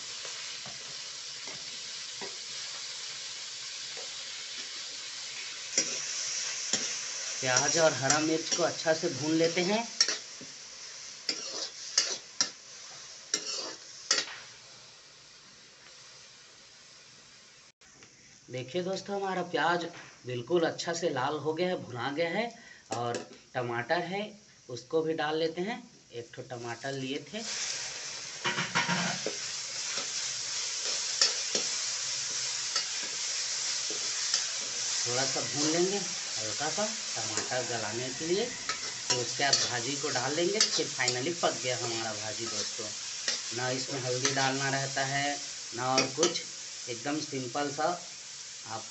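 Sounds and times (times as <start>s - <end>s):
onions sizzling in oil: 0.0s - 48.9s
metal ladle scraping a pan: 11.3s - 12.3s, 13.3s - 14.3s, 36.7s - 41.2s
spatula scraping pan: 11.3s - 12.6s, 13.3s - 14.4s, 28.4s - 44.6s.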